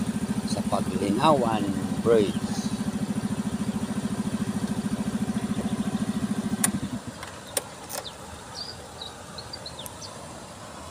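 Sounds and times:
motorcycle engine idling: 0.0 - 10.9
faint bird chirps: 4.8 - 10.2.

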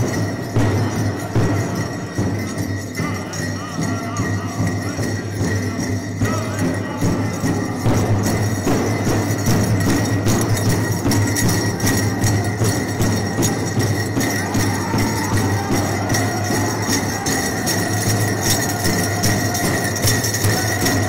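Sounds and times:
bells jingling: 0.0 - 21.0
big drum steady beat: 0.0 - 21.0
group singing: 11.2 - 21.0.

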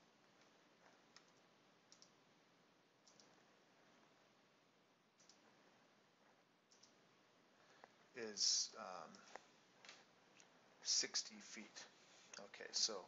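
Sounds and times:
faint computer mouse clicks: 0.4 - 2.2, 3.0 - 3.4, 5.2 - 5.5, 6.7 - 7.0.

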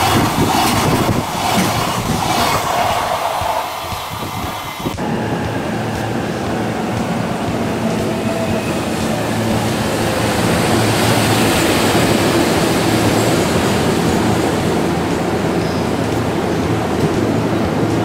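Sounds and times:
electric locomotive passing: 0.0 - 18.0
wheels rumbling on rails: 0.0 - 18.0.

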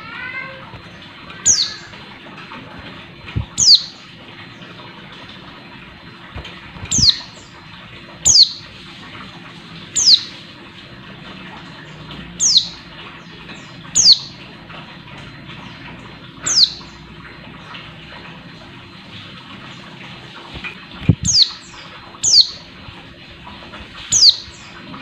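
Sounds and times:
bird giving sharp calls: 1.4 - 1.9, 3.6 - 4.0, 8.3 - 8.6, 10.0 - 10.3, 14.0 - 14.4, 16.4 - 17.0, 21.2 - 22.6, 24.1 - 24.7.

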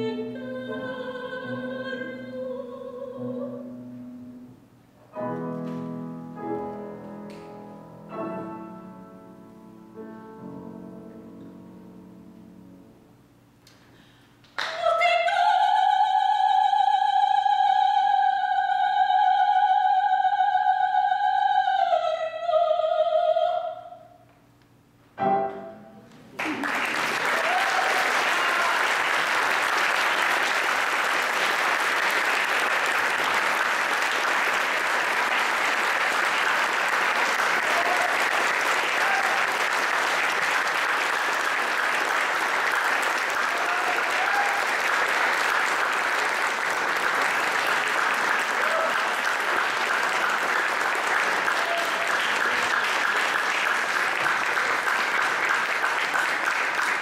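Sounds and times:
audience applauding: 26.3 - 57.0.

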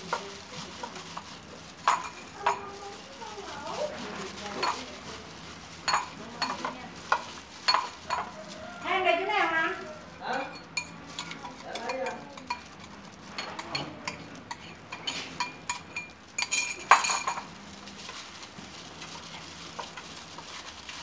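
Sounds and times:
metal spoon scraping a bowl: 10.2 - 18.2.

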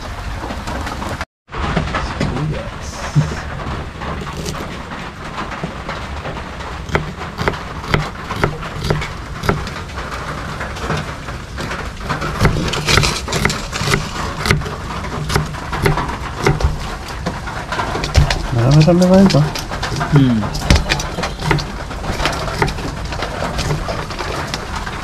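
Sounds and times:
sharp knocks and clicks: 5.4 - 25.0.

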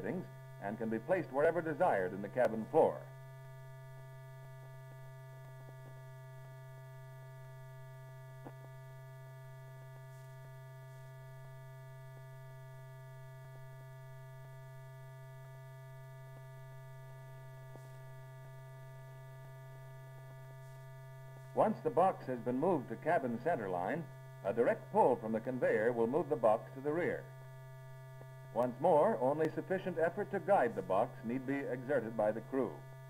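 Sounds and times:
electrical mains hum: 0.0 - 33.0
faint crackle: 8.2 - 12.6.

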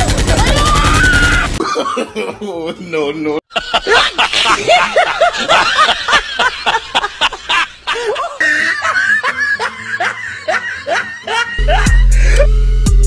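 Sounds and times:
rapid rhythmic laughter: 3.5 - 12.6.

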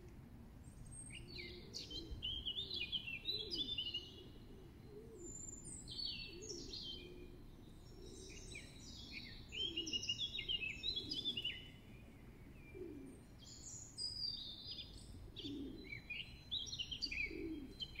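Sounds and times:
songbirds chirping and trilling: 0.0 - 18.0
low cooing: 12.7 - 13.2, 15.3 - 16.0, 17.1 - 17.9.

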